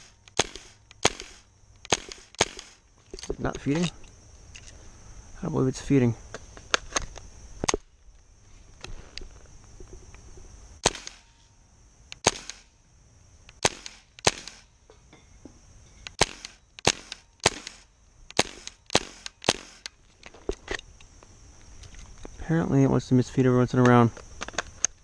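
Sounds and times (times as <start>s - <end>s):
airsoft rifle shots: 0.0s - 2.8s, 10.8s - 11.4s, 12.2s - 12.7s, 13.6s - 14.7s, 16.1s - 19.9s.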